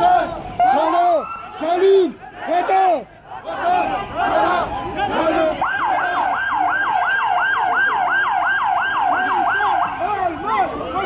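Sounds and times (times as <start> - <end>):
siren yelping: 5.6 - 10.0.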